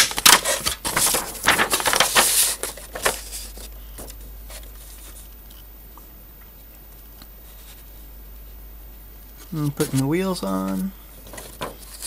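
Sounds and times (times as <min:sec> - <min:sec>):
paper rustling and crinkling: 0:00.0 - 0:05.3, 0:09.4 - 0:12.0.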